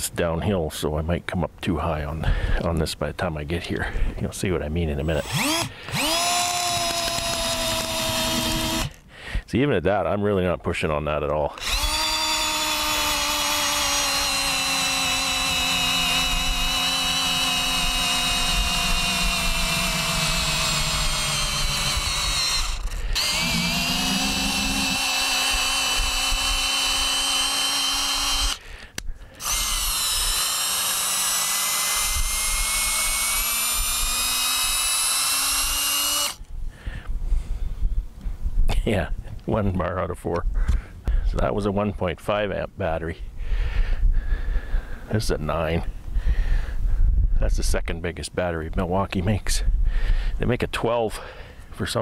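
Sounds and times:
cordless drill boring into wood: 5.0 - 9.0, 11.5 - 36.5.

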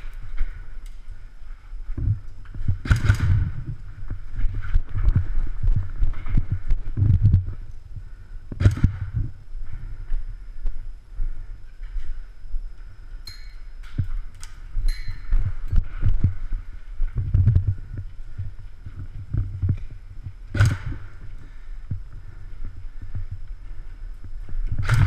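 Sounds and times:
sharp clicks: 2.8 - 3.6, 8.6 - 9.0.

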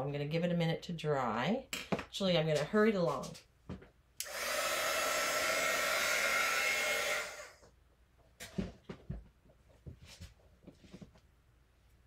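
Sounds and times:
blow dryer blowing: 4.2 - 7.6.

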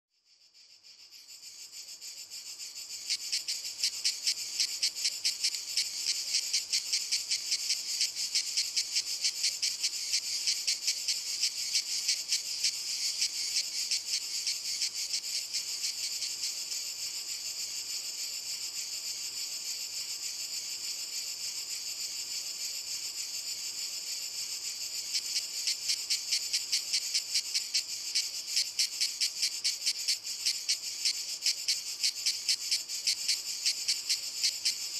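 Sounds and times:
cicadas buzzing: 0.3 - 34.9.

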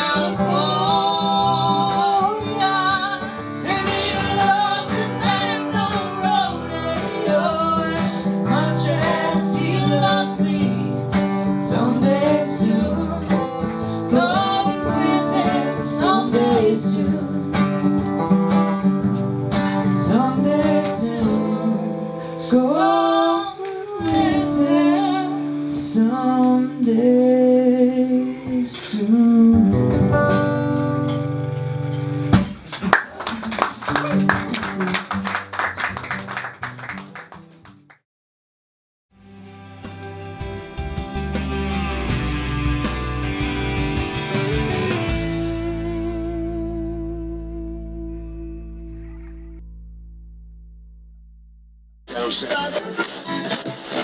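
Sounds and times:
man and woman singing: 0.0 - 17.9, 19.8 - 30.1
acoustic guitar strumming: 0.0 - 37.5, 39.2 - 50.0.

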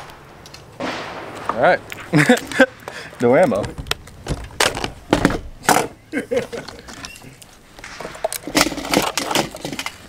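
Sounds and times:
shotgun shells clicking and rattling: 6.6 - 10.0.

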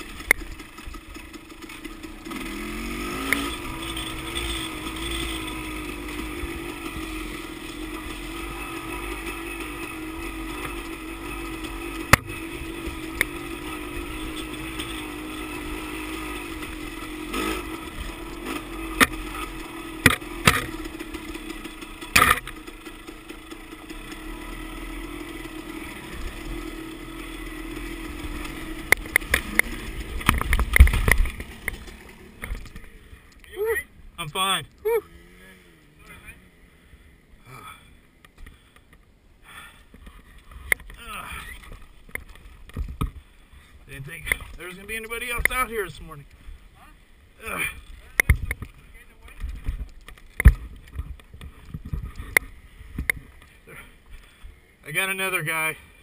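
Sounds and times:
dirt bike engine running: 0.0 - 56.0
sharp knocks and clatters: 20.0 - 21.1, 22.0 - 22.6.

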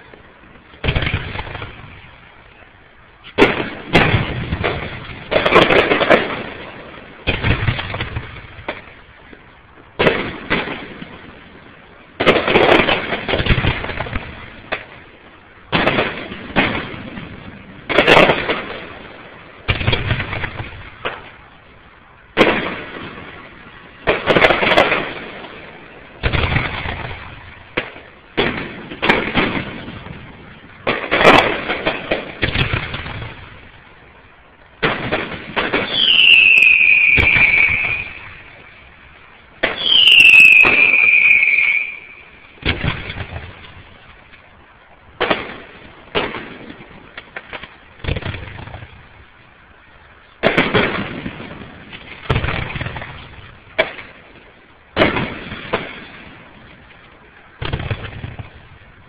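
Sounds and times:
fireworks bursting: 0.0 - 59.0
falling firework whistles: 34.8 - 38.9, 39.6 - 43.4.

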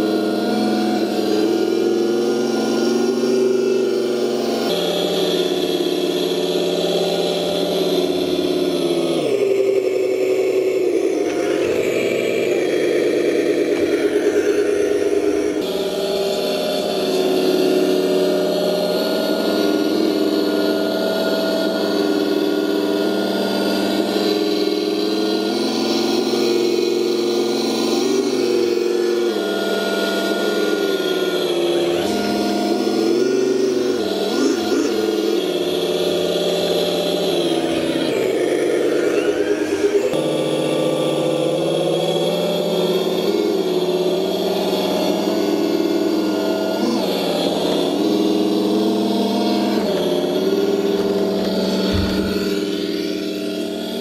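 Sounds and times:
simulated truck engine from speaker: 0.0 - 54.0.

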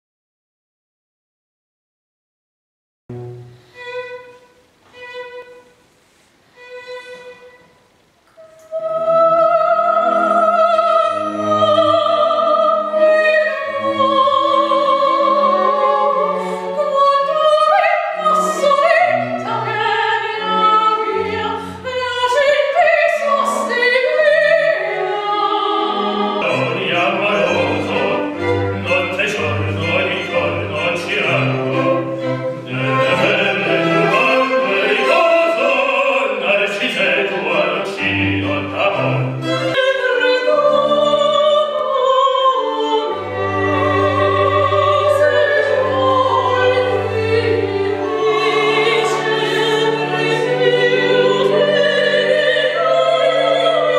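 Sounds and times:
string quartet playing: 3.1 - 53.9
soprano singing operatically: 8.4 - 53.9
male operatic voice: 26.4 - 32.0, 32.6 - 39.4.

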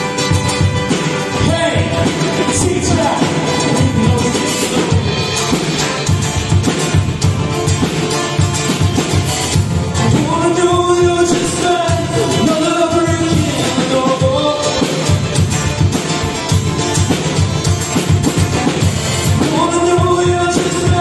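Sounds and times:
acoustic guitar strumming: 0.0 - 21.0
drum kit beat: 0.0 - 21.0
man singing: 1.3 - 5.1, 9.8 - 15.4, 19.2 - 21.0.

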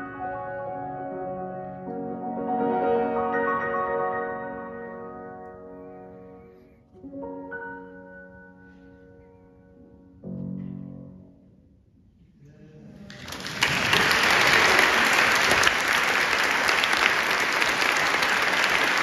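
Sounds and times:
grand piano chord ringing: 0.0 - 11.7
audience applause: 13.0 - 19.0.

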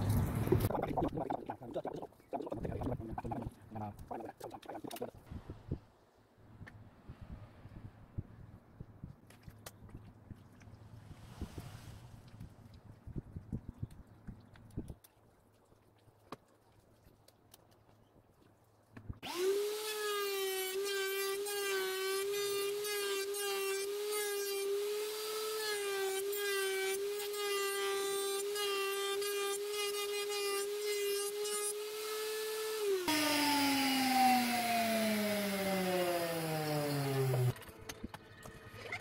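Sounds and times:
wood router whining: 19.2 - 37.6.

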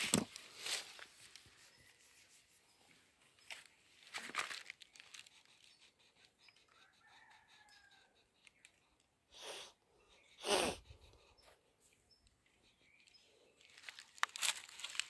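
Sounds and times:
oil pastel scratching on paper: 4.9 - 8.7
distant rooster crowing: 6.7 - 8.2.

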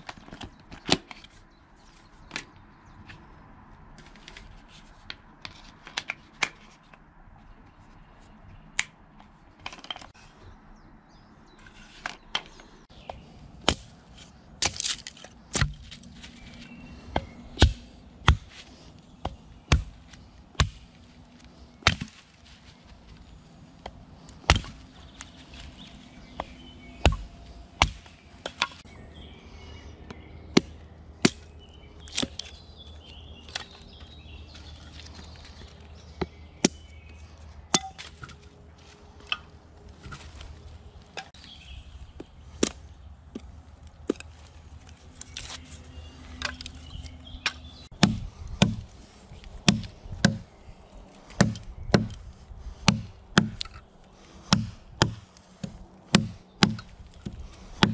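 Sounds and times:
axe chopping wood: 13.1 - 14.0, 14.6 - 16.1, 17.1 - 21.0, 21.8 - 22.2, 23.9 - 24.9, 26.4 - 28.9, 30.5 - 32.5, 42.6 - 43.4, 47.4 - 50.5, 51.3 - 52.2, 52.8 - 53.8, 54.4 - 57.9.

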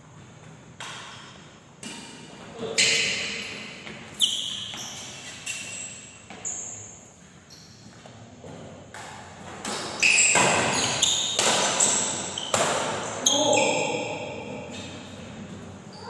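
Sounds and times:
rackets striking shuttlecock: 9.0 - 13.1.

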